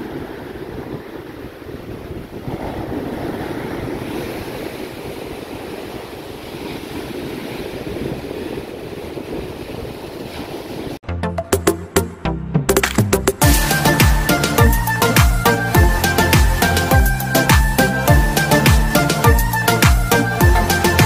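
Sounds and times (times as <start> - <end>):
big waves breaking on beach: 0.0 - 11.0
wind buffeting microphone: 0.0 - 11.0.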